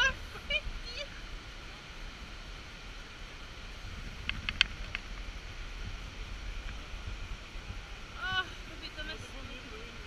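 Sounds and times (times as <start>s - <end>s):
wind rumble on microphone: 0.0s - 10.0s
light clicks: 4.2s - 5.1s.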